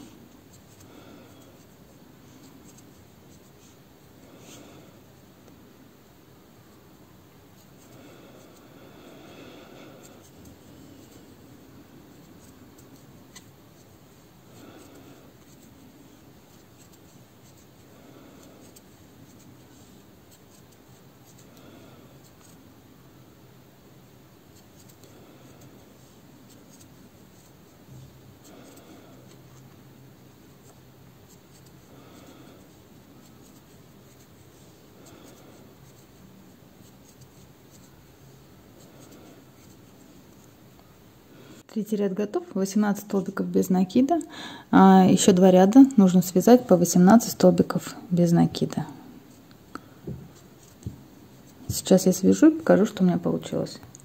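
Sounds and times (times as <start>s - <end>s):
crochet hook rubbing yarn: 0.0s - 5.2s, 6.7s - 40.7s.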